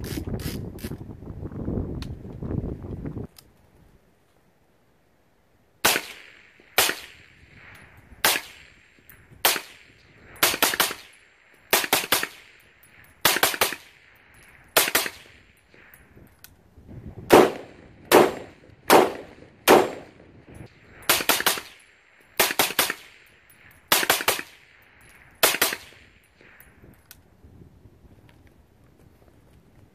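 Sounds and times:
suppressed rifle gunshots: 0:05.8 - 0:07.4, 0:14.8 - 0:15.4, 0:17.3 - 0:20.2, 0:25.4 - 0:26.0
gunshot echo: 0:05.8 - 0:12.6, 0:17.3 - 0:20.3.

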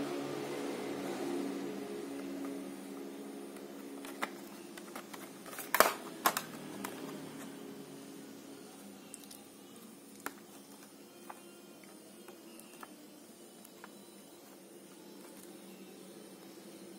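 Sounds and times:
plastic blister pack crackling: 0:03.6 - 0:07.2.

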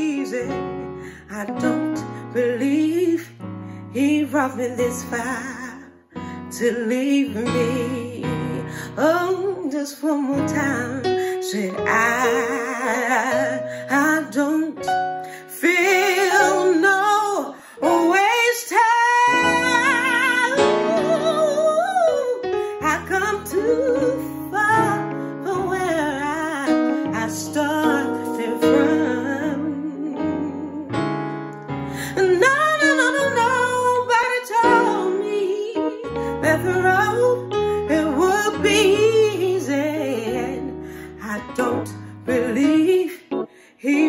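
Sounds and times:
woman singing gospel song: 0:00.0 - 0:00.6, 0:01.2 - 0:31.0, 0:32.0 - 0:44.0
sustained keyboard chords: 0:19.3 - 0:43.6.

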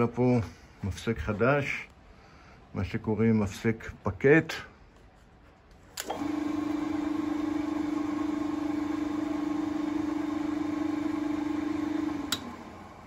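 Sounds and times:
electric drill motor humming: 0:06.0 - 0:13.0
rotary switch click: 0:12.2 - 0:12.6.

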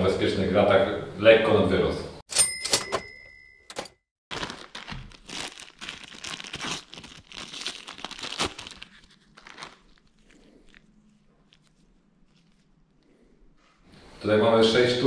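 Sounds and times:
plastic bag crinkling: 0:04.3 - 0:13.0.

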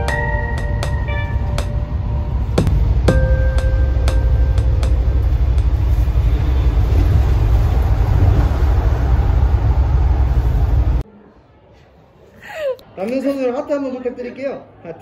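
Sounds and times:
musical note: 0:00.0 - 0:07.4
bus rumbling from inside: 0:00.0 - 0:11.0.

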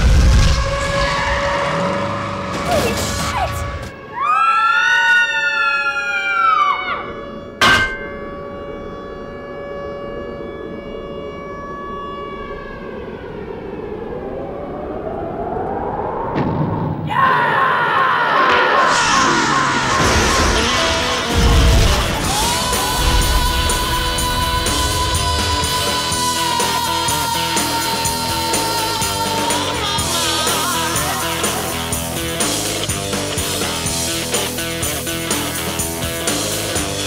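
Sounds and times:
film music: 0:00.0 - 0:17.2, 0:18.8 - 0:37.0
long ringing tone: 0:07.0 - 0:15.7
rising sweep: 0:08.0 - 0:17.1
high screeching monster cry: 0:17.1 - 0:21.4.

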